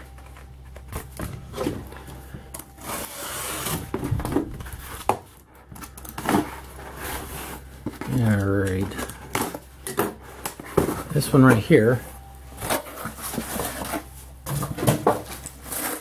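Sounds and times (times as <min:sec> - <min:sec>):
cardboard box scraping: 0:02.8 - 0:05.1, 0:06.2 - 0:08.3, 0:12.6 - 0:16.0.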